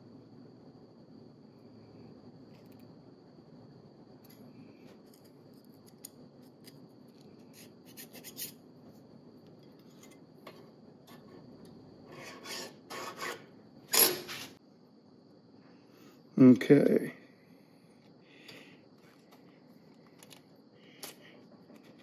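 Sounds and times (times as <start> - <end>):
file scraping on steel: 12.1 - 14.2.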